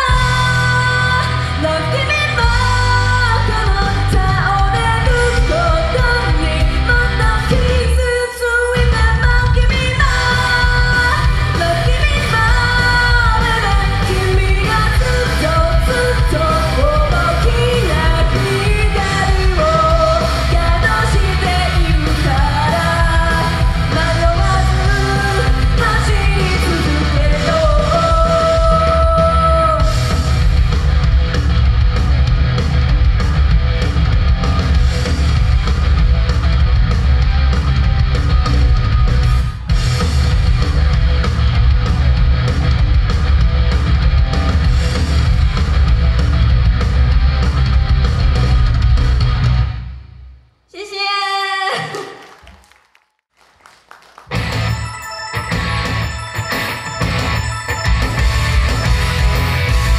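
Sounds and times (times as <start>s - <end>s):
woman singing into microphone: 0.0s - 30.0s
loud rock band playing: 0.0s - 50.1s, 54.3s - 59.9s.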